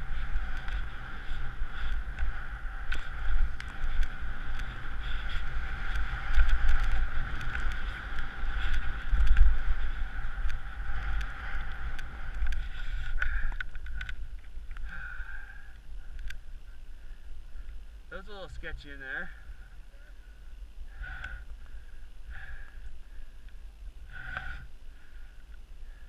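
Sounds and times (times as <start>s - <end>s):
skis scraping over snow: 0.0s - 13.4s
wind buffeting microphone: 0.0s - 19.6s.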